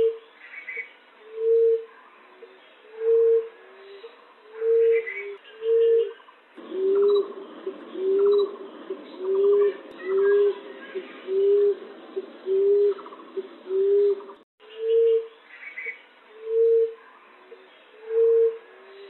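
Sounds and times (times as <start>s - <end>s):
background hiss: 0.0s - 14.4s
faint bird chirps: 0.0s - 19.0s
dove cooing: 1.2s - 3.8s, 4.5s - 15.3s, 16.3s - 19.0s.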